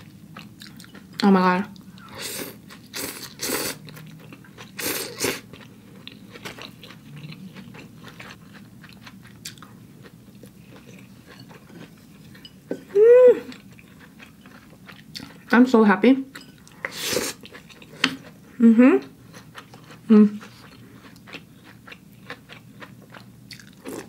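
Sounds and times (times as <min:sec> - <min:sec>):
quiet chewing with mouth clicks: 0:00.0 - 0:02.1, 0:03.8 - 0:12.5, 0:19.2 - 0:24.0
person humming mm: 0:12.9 - 0:13.6, 0:18.6 - 0:19.1.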